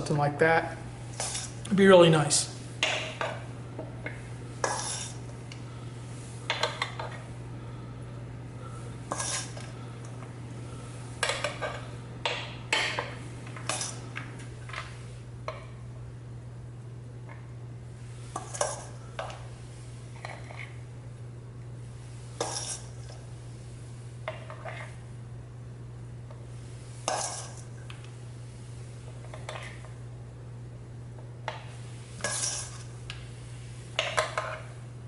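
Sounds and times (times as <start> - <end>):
steady low hum: 0.0 - 35.0
metal spoon scraping and clinking: 4.6 - 5.2, 9.1 - 9.6, 22.4 - 22.9, 27.1 - 27.6, 32.2 - 32.9.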